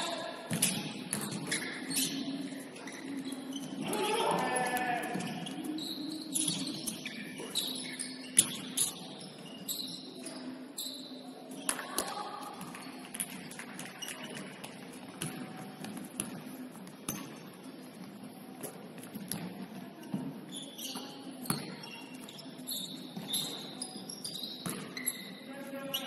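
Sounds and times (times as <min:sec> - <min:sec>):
sneakers squeaking: 0:00.0 - 0:26.0
basketball bouncing: 0:00.5 - 0:01.7.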